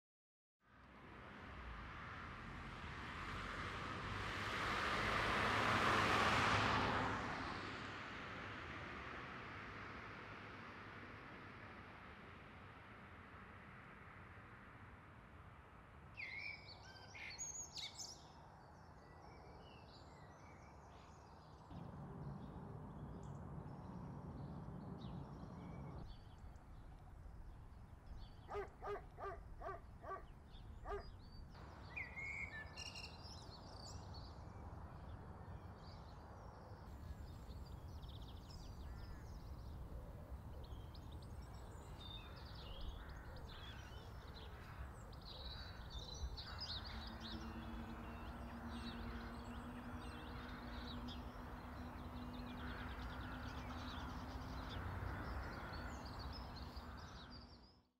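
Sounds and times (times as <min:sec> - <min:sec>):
birds chirping and singing: 0:28.1 - 0:34.0
short evenly spaced calls: 0:28.5 - 0:31.1.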